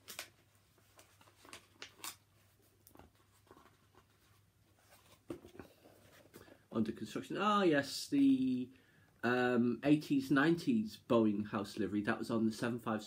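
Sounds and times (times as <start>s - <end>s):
book pages peeled apart and turned: 0.0s - 5.4s
paper rustling: 0.0s - 6.6s.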